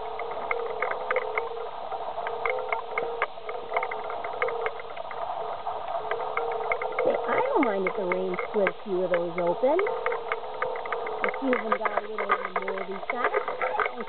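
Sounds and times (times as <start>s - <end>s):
mechanical hum: 0.0s - 14.0s
pig chewing: 5.9s - 14.0s.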